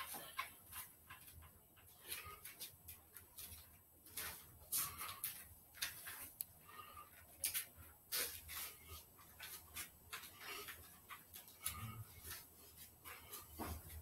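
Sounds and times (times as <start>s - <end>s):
person breathing hard: 6.5s - 7.4s, 10.2s - 14.0s.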